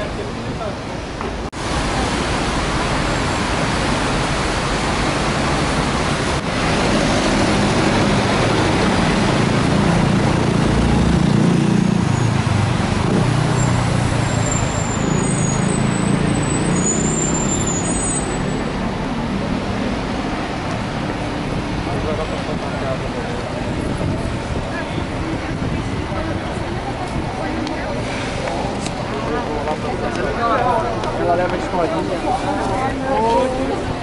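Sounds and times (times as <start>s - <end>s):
tyres hissing on wet road: 0.1s - 32.7s
cars and motorcycles passing: 1.6s - 34.0s.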